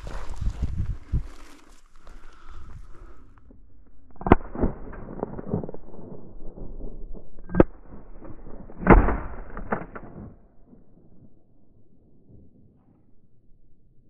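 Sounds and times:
rustling crackle: 0.0 - 10.3.

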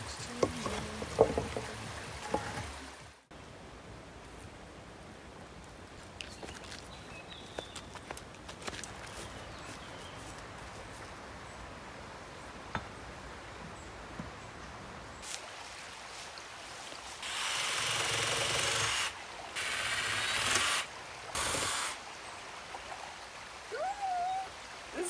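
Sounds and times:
cordless drill driving screws: 17.2 - 22.0.

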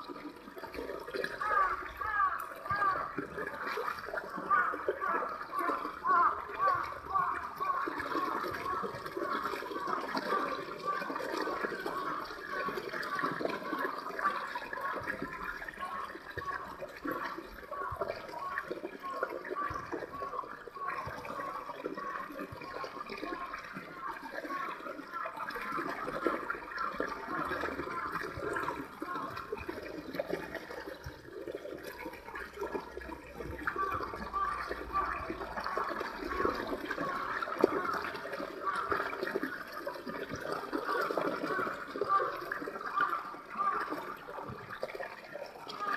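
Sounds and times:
stream flowing over rocks: 0.0 - 45.9.

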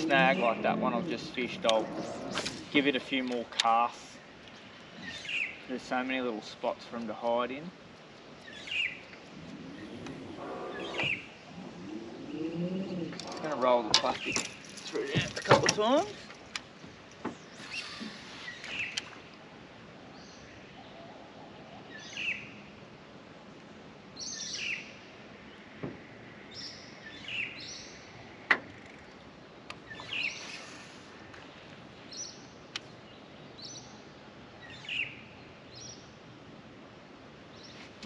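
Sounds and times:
birds calling with falling notes: 0.0 - 7.6, 8.2 - 19.3, 20.1 - 22.8, 24.2 - 36.1.

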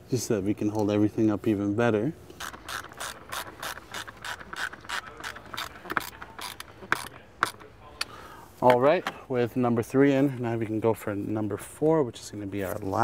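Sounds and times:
hand ratchet clicking: 2.3 - 8.1.

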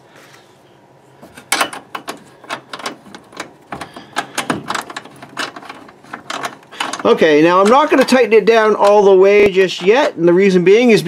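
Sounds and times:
metallic clicks of washers and nut: 1.4 - 8.2.

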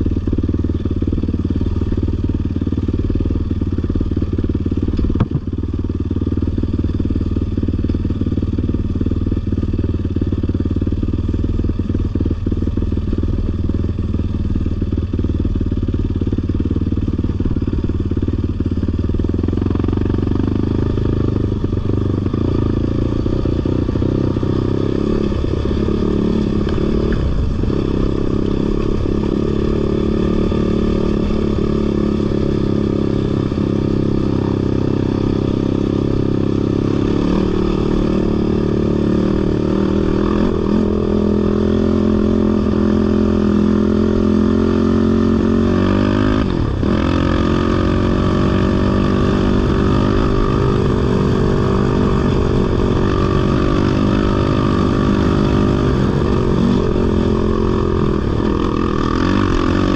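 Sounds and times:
off-road vehicle engine revving: 19.6 - 59.9.

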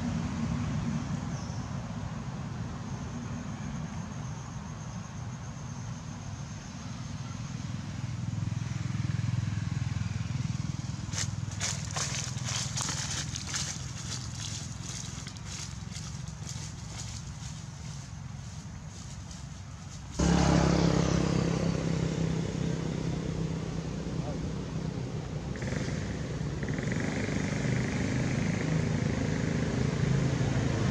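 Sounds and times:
steady low rumble: 10.4 - 20.2.

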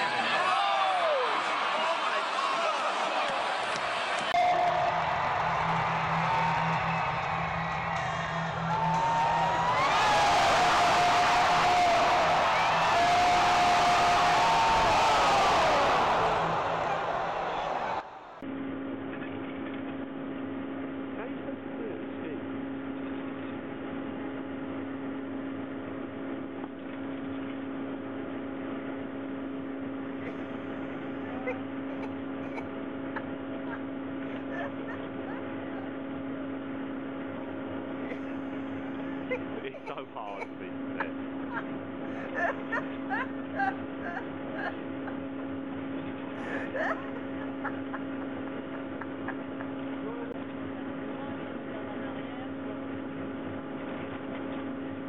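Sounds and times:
ski lift machinery humming: 4.2 - 18.4, 25.8 - 55.0.

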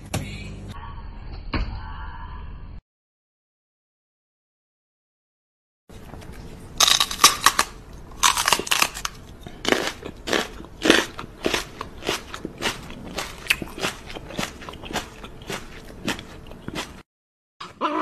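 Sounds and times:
crisp crunching of chewing: 5.9 - 17.0.

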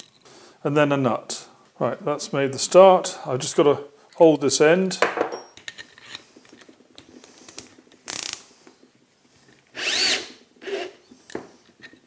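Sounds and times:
cordless drill whirring: 9.7 - 11.0.

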